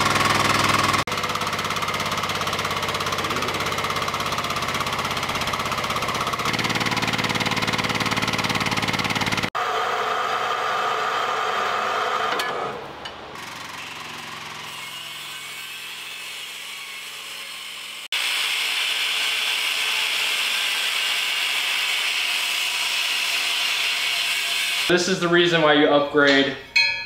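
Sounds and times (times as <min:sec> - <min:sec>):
hydraulic machine hum: 0:00.0 - 0:14.7
angle grinder grinding steel: 0:02.2 - 0:12.8, 0:13.8 - 0:24.9.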